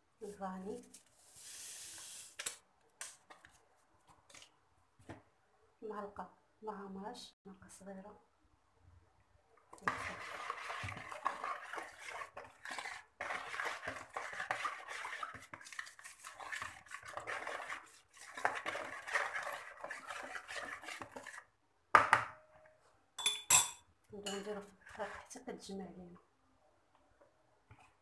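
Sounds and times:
spoon beating mixture in bowl: 9.7s - 21.5s, 24.2s - 25.4s.

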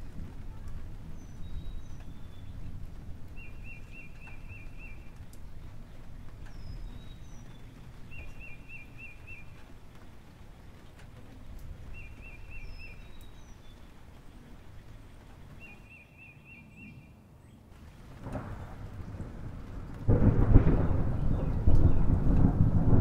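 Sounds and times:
high falling bird chirps: 3.3s - 5.8s, 6.5s - 9.7s, 11.9s - 17.7s.

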